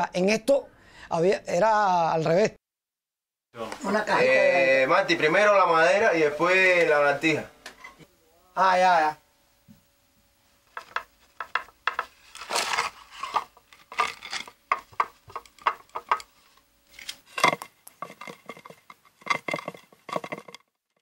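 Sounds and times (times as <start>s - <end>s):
wood scraping and knocking on wood: 10.7s - 21.0s.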